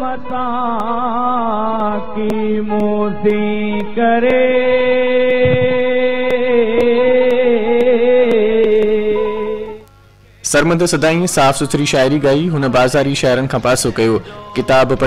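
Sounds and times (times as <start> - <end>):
steady accompanying tone: 5.5 - 6.2.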